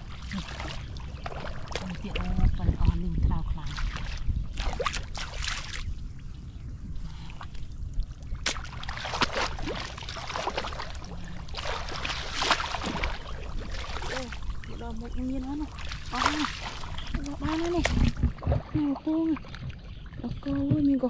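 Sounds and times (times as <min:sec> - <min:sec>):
steady low rumble: 0:00.0 - 0:21.0
footsteps splashing through water: 0:00.2 - 0:05.9, 0:08.4 - 0:14.5, 0:15.7 - 0:19.7.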